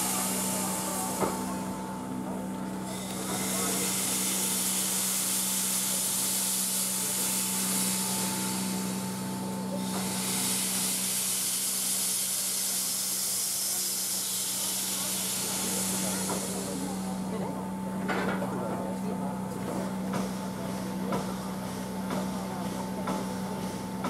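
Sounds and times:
steam locomotive hissing: 0.0s - 17.8s.

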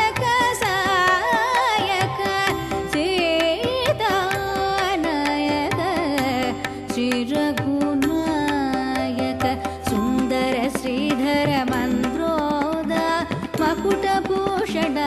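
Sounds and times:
mridangam and tabla strokes: 0.0s - 15.0s.

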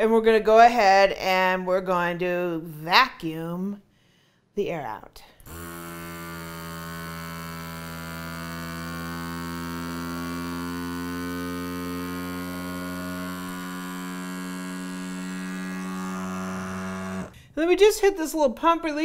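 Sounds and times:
vacuum pump motor humming: 5.4s - 17.6s.

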